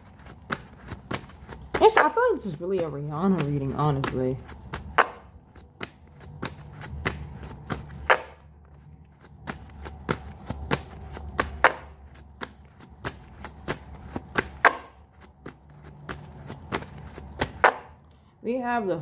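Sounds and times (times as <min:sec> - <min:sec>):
cards being shuffled: 0:03.4 - 0:17.8.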